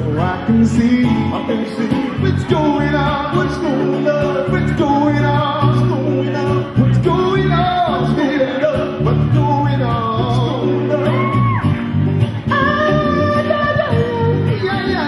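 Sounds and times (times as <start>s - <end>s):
bass guitar: 0.0s - 15.0s
man singing: 0.0s - 15.0s
strummed acoustic guitar: 0.0s - 15.0s.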